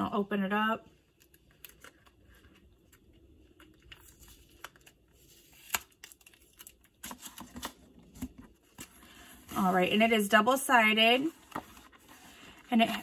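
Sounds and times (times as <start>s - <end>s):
plastic packaging crinkling and tearing: 1.2s - 7.9s.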